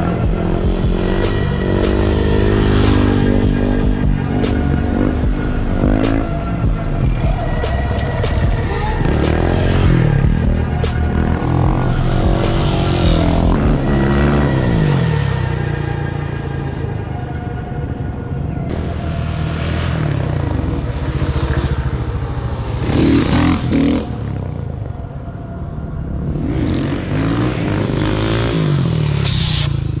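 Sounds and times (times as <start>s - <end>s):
motorcycle engine revving: 0.0s - 17.0s, 18.7s - 25.0s.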